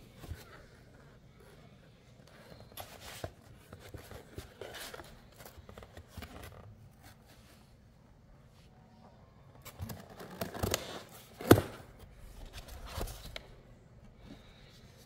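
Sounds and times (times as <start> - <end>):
cardboard box rustling: 2.2 - 7.6.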